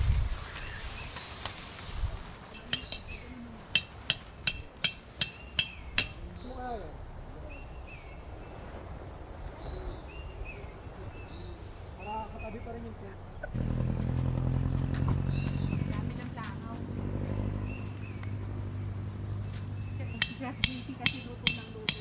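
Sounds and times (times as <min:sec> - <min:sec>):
birds chirping: 0:00.4 - 0:22.0
tent stake being hammered: 0:02.5 - 0:03.1, 0:03.7 - 0:06.2, 0:20.1 - 0:22.0.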